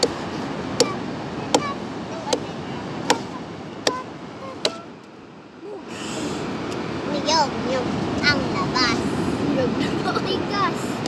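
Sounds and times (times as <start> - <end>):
cleaver chopping on wood: 2.3 - 4.0, 4.6 - 4.8.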